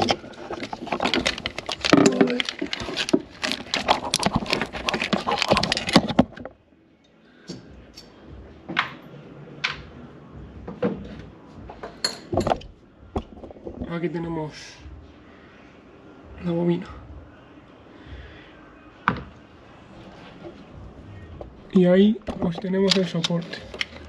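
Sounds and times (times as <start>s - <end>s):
metal parts clattering: 0.0s - 6.4s.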